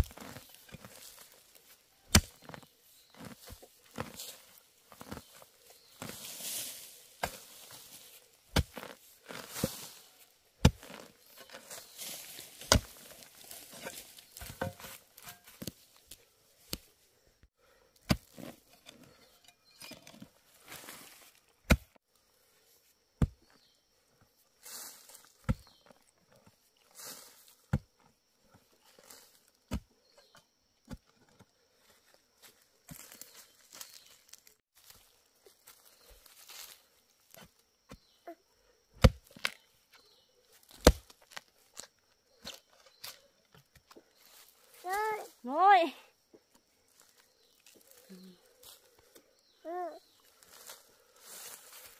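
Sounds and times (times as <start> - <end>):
dirt and dry leaves rustling: 0.0 - 51.9
hoe chopping into soil: 2.1 - 2.6, 6.0 - 7.9, 8.5 - 10.0, 10.6 - 15.7, 18.0 - 19.1, 21.7 - 22.0, 23.2 - 23.6, 39.0 - 39.6, 40.7 - 41.4.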